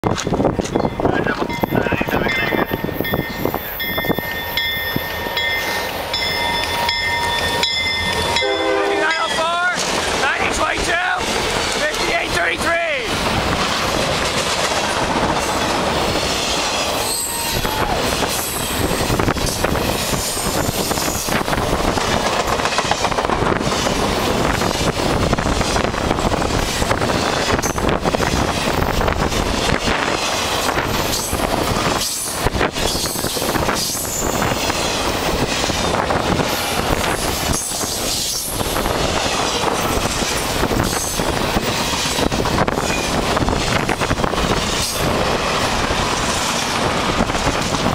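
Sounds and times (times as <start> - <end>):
clickety-clack over rail joints: 0.0 - 47.9
train wheels rumbling on rails: 0.0 - 47.9
high wheel squeals: 16.9 - 21.4.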